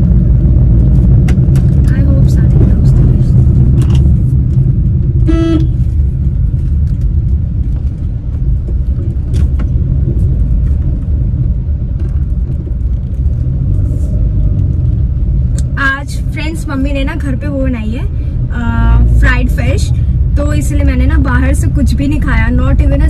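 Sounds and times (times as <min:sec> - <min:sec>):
car engine and road rumble: 0:00.0 - 0:23.0
short beep: 0:05.2 - 0:05.8.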